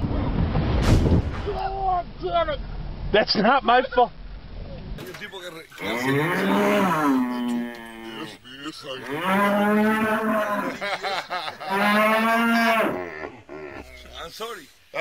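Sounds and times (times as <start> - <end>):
cattle mooing: 5.8 - 8.4, 9.0 - 10.9, 11.6 - 14.3.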